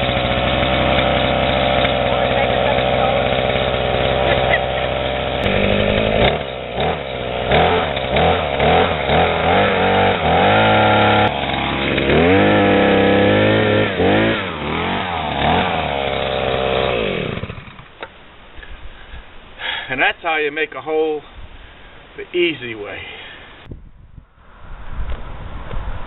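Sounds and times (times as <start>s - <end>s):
auger engine revving: 0.0s - 18.1s.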